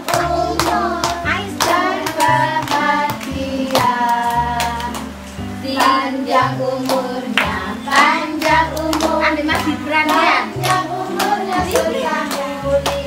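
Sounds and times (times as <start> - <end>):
children clapping in time: 0.0 - 13.0
children singing: 0.0 - 13.0.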